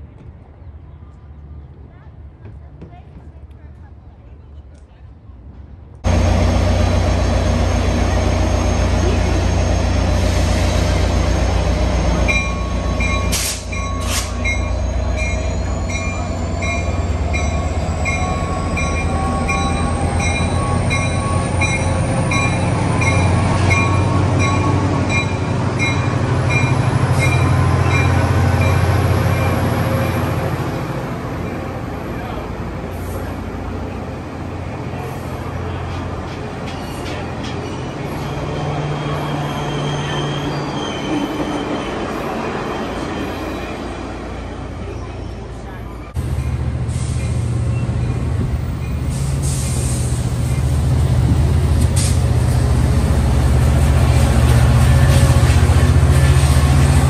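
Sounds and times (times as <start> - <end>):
diesel locomotive engine rumbling: 0.0 - 57.0.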